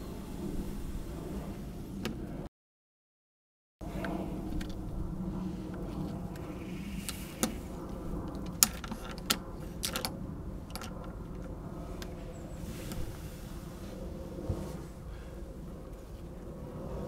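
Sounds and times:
low steady hum: 0:03.8 - 0:17.0
plastic toy clicking and cracking: 0:08.3 - 0:10.1, 0:10.7 - 0:11.1.

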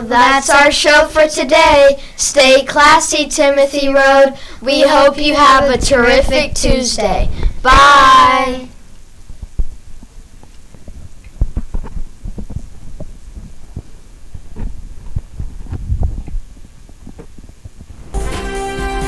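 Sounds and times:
faint hum: 0:00.0 - 0:18.2
soft low thumps: 0:09.2 - 0:18.0
music: 0:18.0 - 0:19.0.

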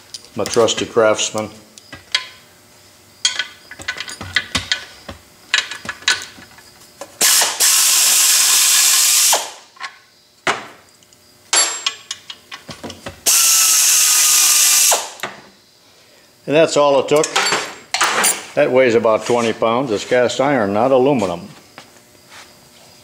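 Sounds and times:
pneumatic air ratchet running: 0:07.2 - 0:09.7, 0:13.2 - 0:15.2.

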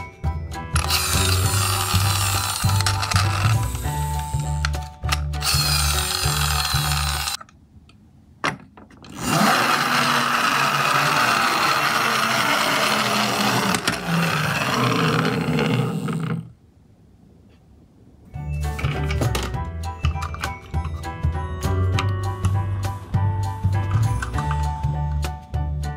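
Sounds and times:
music: 0:00.0 - 0:07.4, 0:18.3 - 0:25.9
toy truck gear drive whirring: 0:00.8 - 0:07.5, 0:09.0 - 0:16.5.

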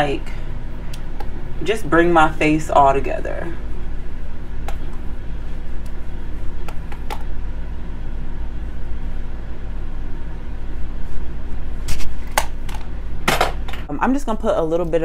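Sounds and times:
room noise rumble and hum: 0:00.0 - 0:15.0.

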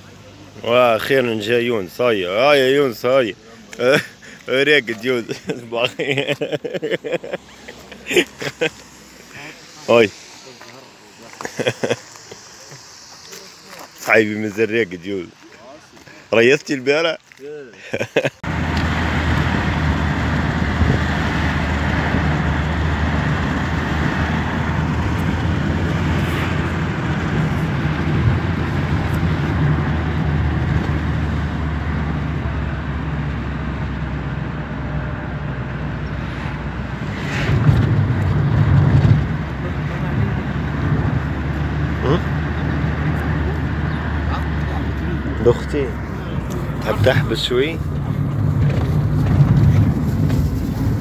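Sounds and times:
car engine hum: 0:00.0 - 0:51.0
road noise: 0:00.0 - 0:51.0
wind noise: 0:19.0 - 0:31.3, 0:36.0 - 0:39.6, 0:46.5 - 0:51.0.

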